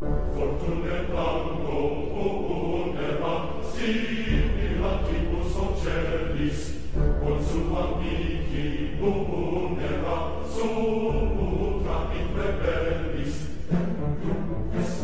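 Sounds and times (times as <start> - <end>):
choir-like chanting voices: 0.0 - 15.0
deep sustained bass: 4.3 - 9.6.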